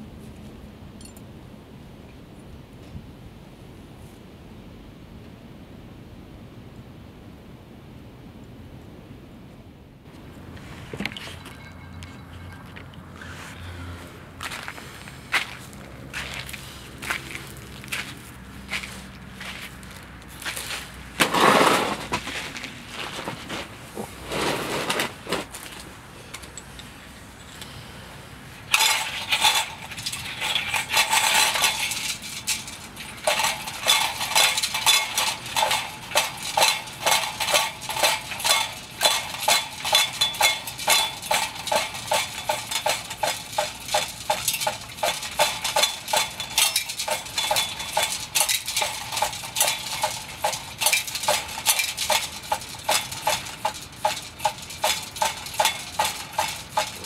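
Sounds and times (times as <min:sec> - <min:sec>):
hand pump clinking strokes: 0:28.6 - 0:57.0.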